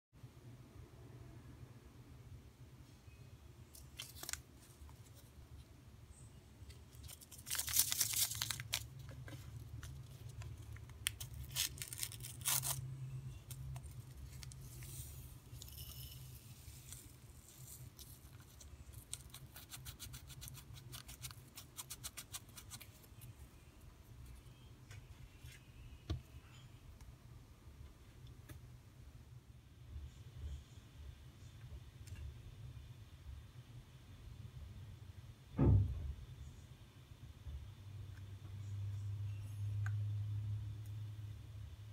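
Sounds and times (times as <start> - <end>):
paper packet ripping: 3.8 - 4.4, 6.9 - 9.1, 9.9 - 12.9
paper packet rustling: 3.8 - 5.3, 6.9 - 12.9.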